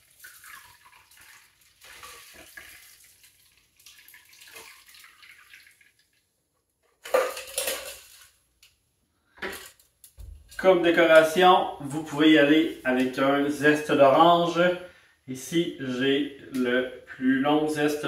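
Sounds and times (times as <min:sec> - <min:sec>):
liquid trickling into glass: 0:00.1 - 0:06.2
metal shaker clattering: 0:07.0 - 0:08.3.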